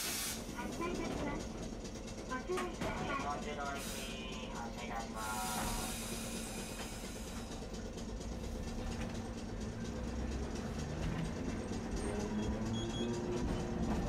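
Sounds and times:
streetcar motor hum: 0.0 - 14.0
wheels clicking and rattling: 5.8 - 14.0.

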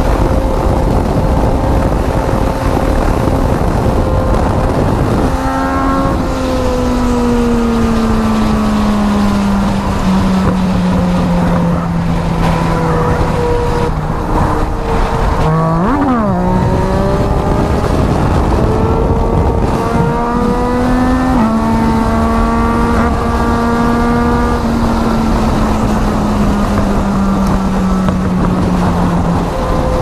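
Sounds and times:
motorcycle engine revving: 0.0 - 30.0
wind noise on microphone: 0.0 - 30.0.

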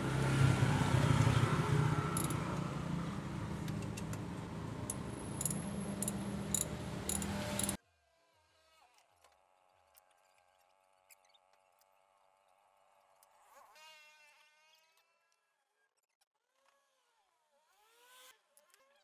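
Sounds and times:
low hum: 0.0 - 7.8
socket wrench clinking: 2.2 - 2.5, 3.6 - 7.8.

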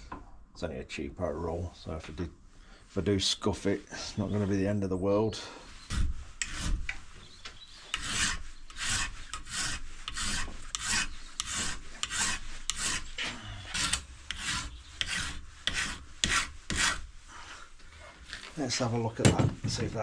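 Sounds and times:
file rasping on metal: 5.8 - 17.8.

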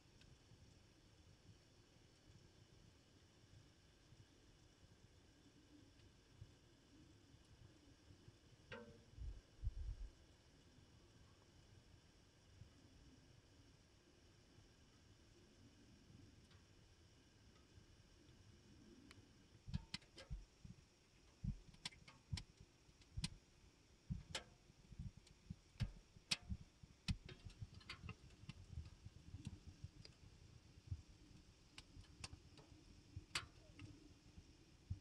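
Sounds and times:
quiet low hum: 0.0 - 35.0
faint irregular clicks: 0.1 - 0.4, 5.4 - 12.0, 14.8 - 35.0.

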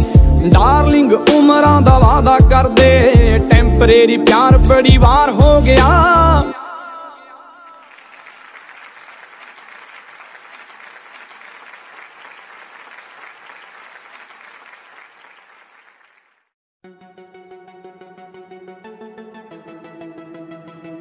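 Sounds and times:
crowd clapping: 7.8 - 16.5.

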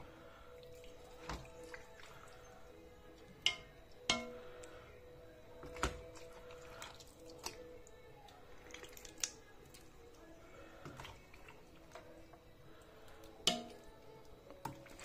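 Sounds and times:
clinks against metal pot: 3.4 - 4.4, 13.5 - 13.8.

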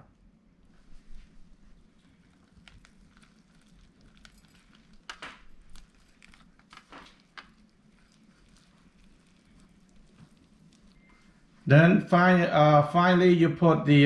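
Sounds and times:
rice paper rustling: 0.7 - 11.8
brief crackles and taps: 2.5 - 8.2.

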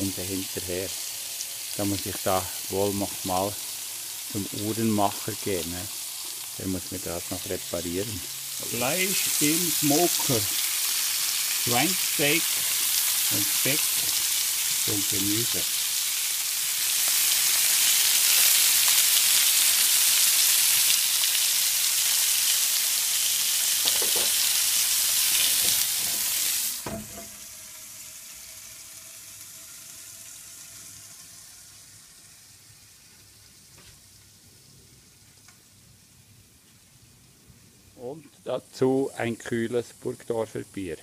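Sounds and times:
meat sizzling on a grill: 0.0 - 41.0
knock: 26.8 - 27.4.

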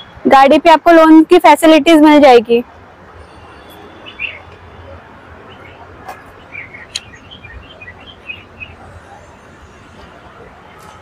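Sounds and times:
birds chirping: 3.2 - 10.0
sharp clicks: 6.9 - 7.1.

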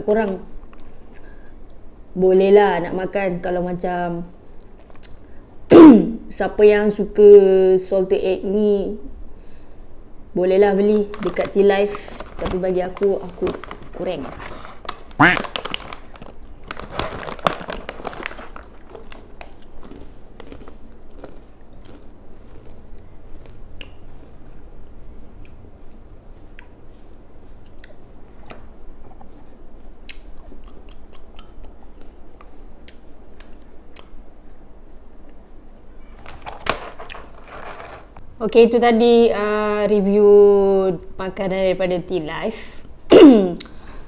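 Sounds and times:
person crunching crisps: 11.1 - 24.4, 36.2 - 38.1.

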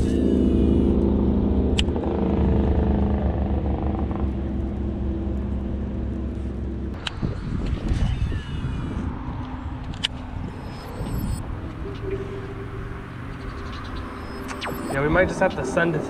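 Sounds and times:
boat motor running: 0.0 - 7.1.

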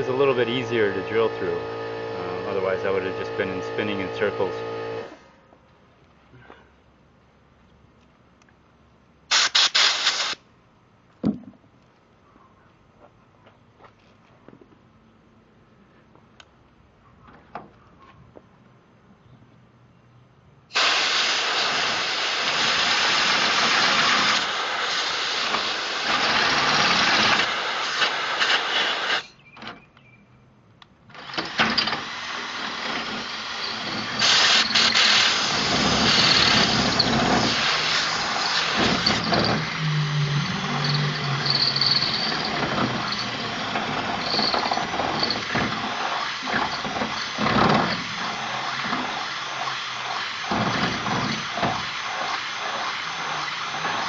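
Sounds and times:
drill boring through steel: 0.0 - 5.2, 20.7 - 29.3, 31.2 - 54.0
blow gun hissing air: 9.3 - 10.4, 20.7 - 29.3, 32.0 - 54.0.

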